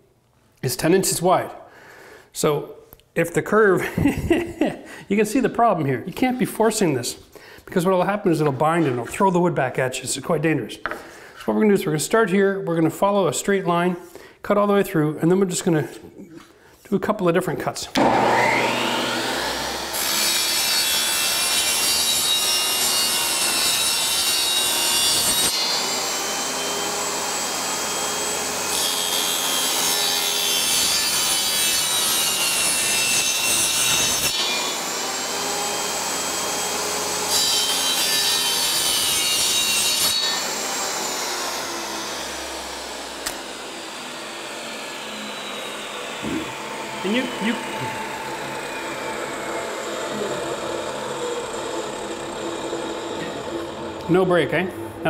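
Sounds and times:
saw whine coasting down: 0:18.0 - 0:20.0, 0:41.4 - 0:55.0
table saw cutting wood: 0:18.0 - 0:55.0.

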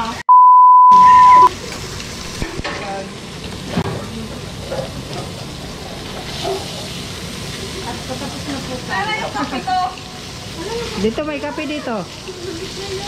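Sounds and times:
censor bleep: 0:00.3 - 0:01.5
meat sizzling in a frying pan: 0:01.5 - 0:13.0.

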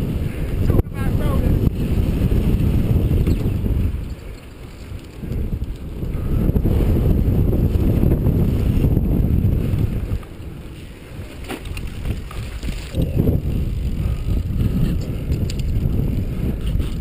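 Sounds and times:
wind buffeting microphone: 0:00.0 - 0:17.0
bike clicks and rattles: 0:01.8 - 0:07.0, 0:09.7 - 0:17.0.

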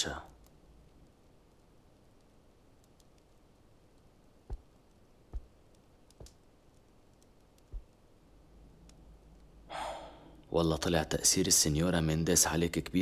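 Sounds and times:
soft footsteps: 0:04.5 - 0:05.6, 0:07.7 - 0:08.0.

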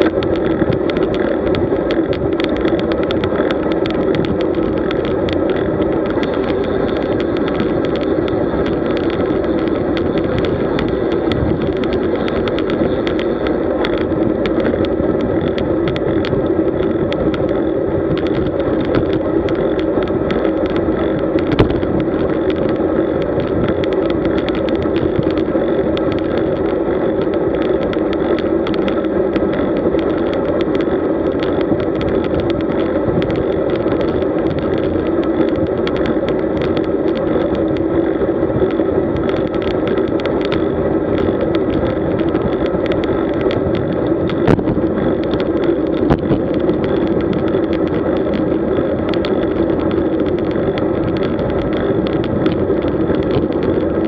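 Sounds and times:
bike road noise: 0:00.0 - 0:54.0
small clicks and knocks: 0:00.0 - 0:54.0
wind noise on microphone: 0:00.0 - 0:54.0.

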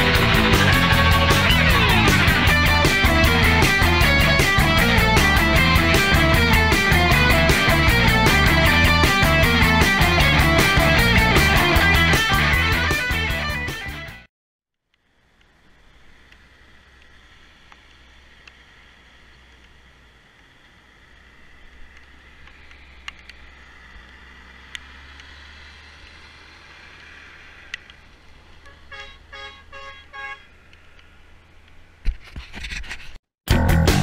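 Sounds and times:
bus engine on gravel road: 0:00.0 - 0:13.0, 0:15.0 - 0:32.1
vehicle horn short toots: 0:28.6 - 0:30.5.

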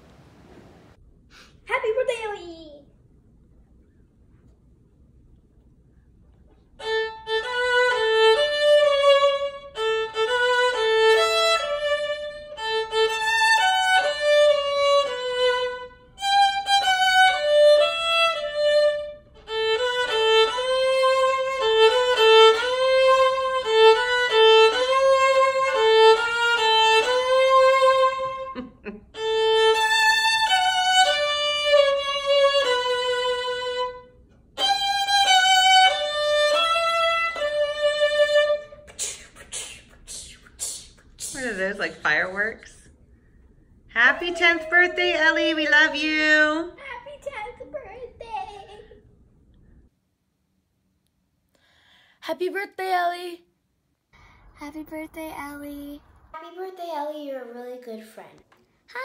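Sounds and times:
solo violin melody: 0:06.8 - 0:28.6, 0:29.2 - 0:38.8.

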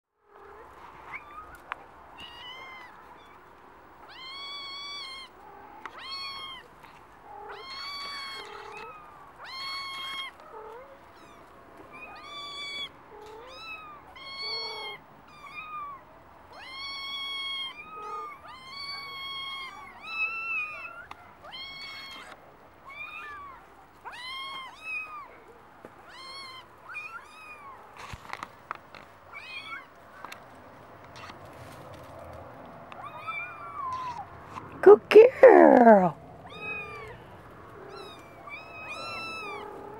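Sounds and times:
kittens mewing: 0:33.0 - 0:34.4, 0:35.0 - 0:39.9.

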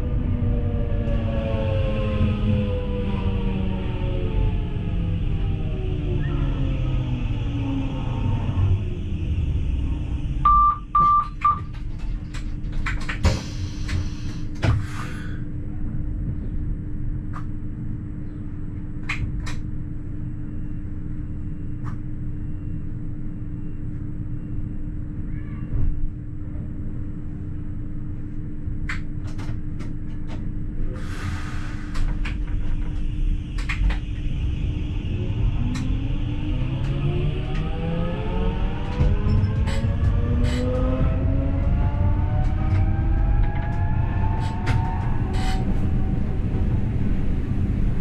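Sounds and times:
short beeps: 0:10.5 - 0:11.6.

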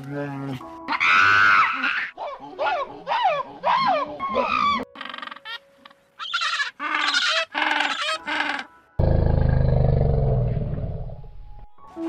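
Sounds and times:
penguins trumpeting calls: 0:06.2 - 0:08.8
loud low pulsing animal call: 0:09.0 - 0:11.3.

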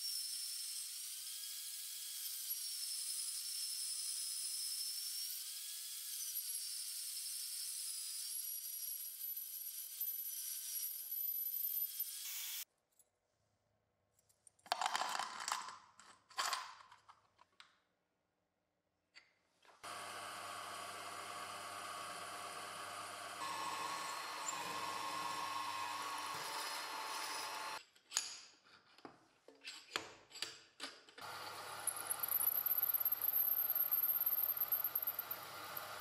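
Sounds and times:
milling machine drilling: 0:19.8 - 0:27.8, 0:31.2 - 0:36.0.

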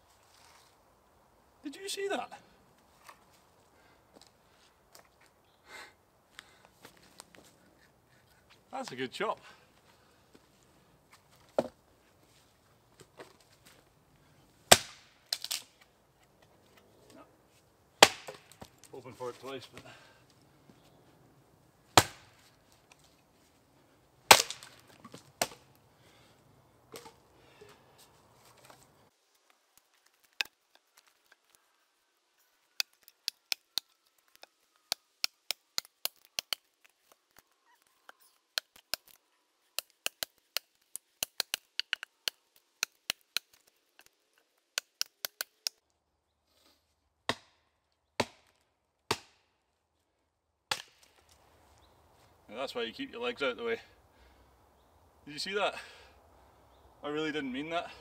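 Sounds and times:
axe chopping into log: 0:14.7 - 0:15.1, 0:18.0 - 0:18.6, 0:22.0 - 0:22.3, 0:24.3 - 0:24.8, 0:47.3 - 0:47.6, 0:48.2 - 0:49.4, 0:50.7 - 0:51.0.

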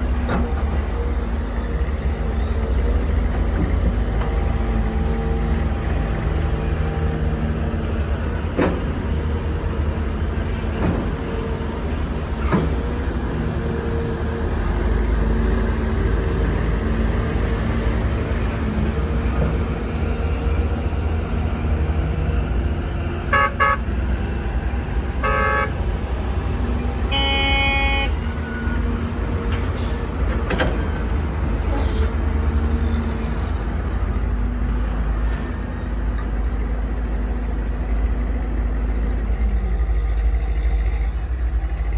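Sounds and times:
excavator diesel engine running: 0:00.0 - 0:41.9
vehicle horn toots: 0:23.3 - 0:23.8, 0:25.2 - 0:25.8, 0:27.1 - 0:28.2.

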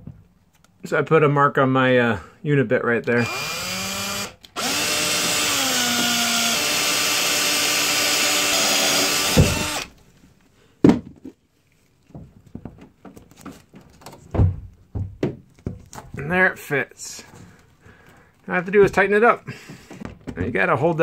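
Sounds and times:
power drill motor whine: 0:03.2 - 0:09.9.

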